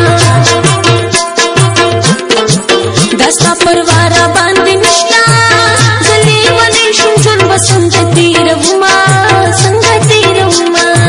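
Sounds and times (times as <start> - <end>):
dance music with steady beat: 0.0 - 11.0.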